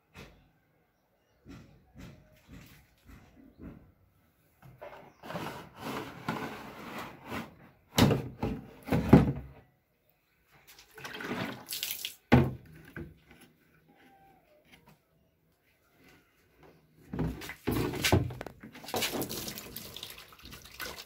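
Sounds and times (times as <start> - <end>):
water sloshing in plastic tank: 10.6 - 13.4, 17.0 - 21.0.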